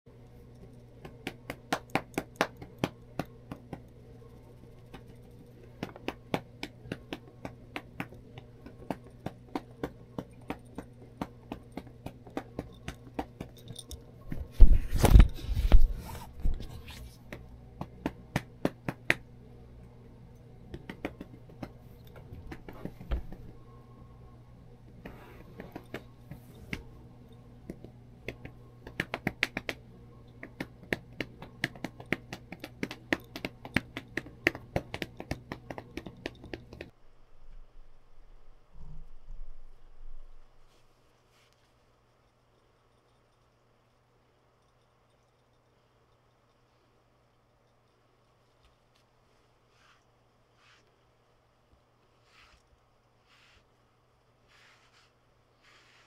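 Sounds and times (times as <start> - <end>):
faint steady hum: 0.1 - 56.0
fur rustling against microphone: 49.3 - 50.9, 52.2 - 52.6, 53.2 - 53.7.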